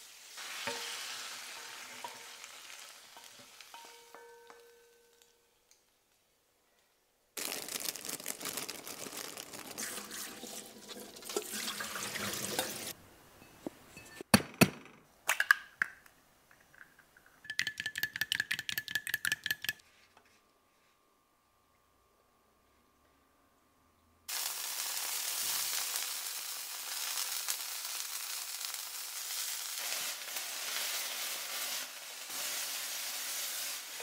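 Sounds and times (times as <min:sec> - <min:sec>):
water running: 0:09.6 - 0:13.0.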